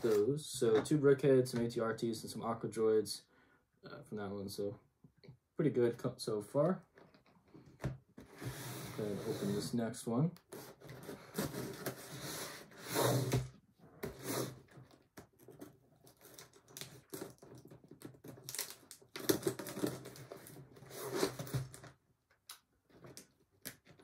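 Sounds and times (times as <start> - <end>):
packing tape tearing off box: 16.1 - 21.9.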